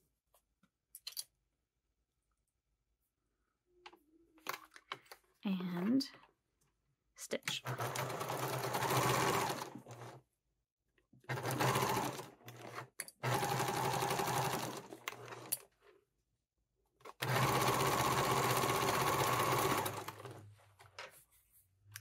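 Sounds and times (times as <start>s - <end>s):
electric sewing machine stitching: 7.6s - 10.2s, 11.3s - 15.6s, 17.1s - 20.4s.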